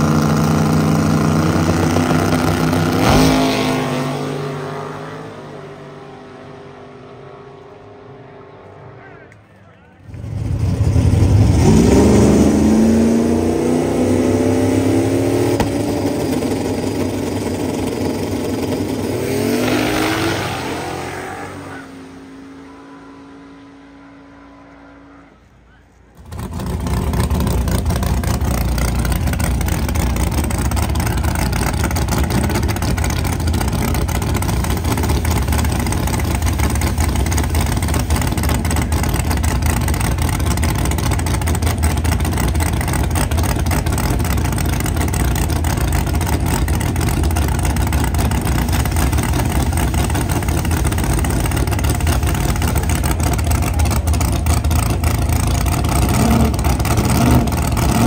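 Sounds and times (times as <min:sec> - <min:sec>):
drag car engine idling loudly: 0:15.6 - 0:19.1, 0:25.1 - 0:58.0.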